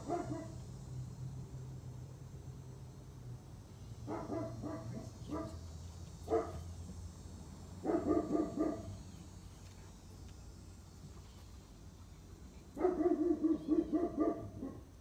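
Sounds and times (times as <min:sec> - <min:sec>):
dog barking: 0:00.0 - 0:00.6, 0:04.1 - 0:05.6, 0:06.3 - 0:06.6, 0:07.8 - 0:09.0, 0:12.8 - 0:14.9.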